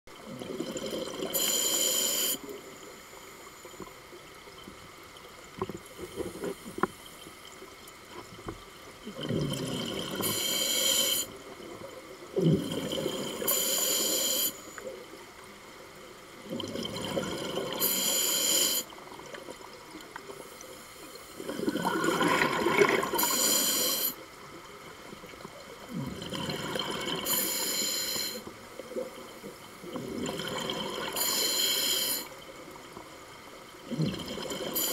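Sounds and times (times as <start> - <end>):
rush of exhaled bubbles: 9.0 - 10.6, 16.4 - 18.0, 21.4 - 23.5, 25.9 - 27.5, 29.8 - 31.2, 33.9 - 34.9
diver breathing through regulator: 10.2 - 11.3, 12.6 - 14.8, 23.1 - 24.2, 27.2 - 28.5, 31.2 - 32.3.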